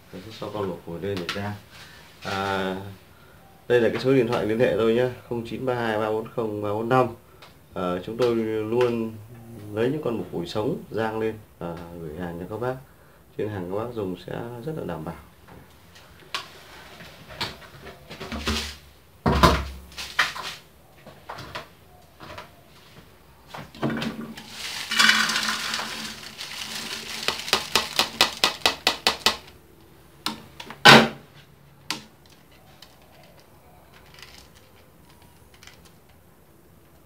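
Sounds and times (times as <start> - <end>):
lid rattling: 24.0 - 29.4.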